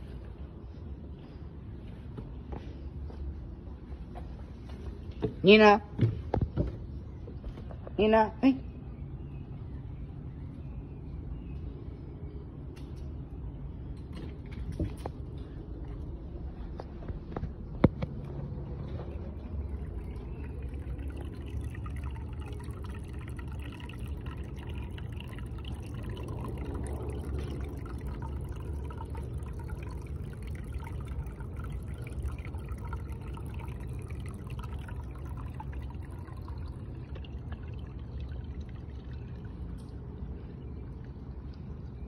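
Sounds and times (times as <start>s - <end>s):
low rumble: 9.0s - 42.0s
water pouring and splashing: 17.2s - 40.4s.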